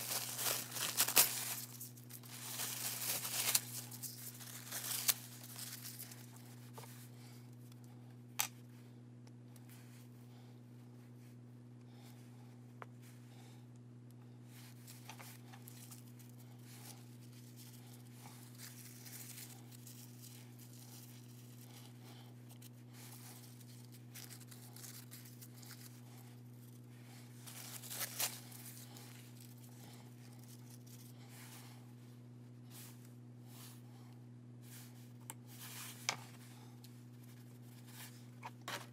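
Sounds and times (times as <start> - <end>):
tissue paper crinkling: 0.0 - 7.0, 14.5 - 21.9, 22.5 - 31.8
low electrical hum: 0.0 - 38.9.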